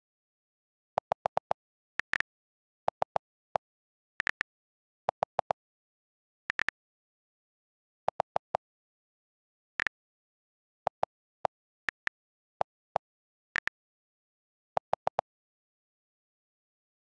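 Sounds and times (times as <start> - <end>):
on-screen keyboard clicks: 1.0 - 2.3, 5.1 - 5.6, 6.5 - 6.8, 10.9 - 12.8, 13.6 - 13.8.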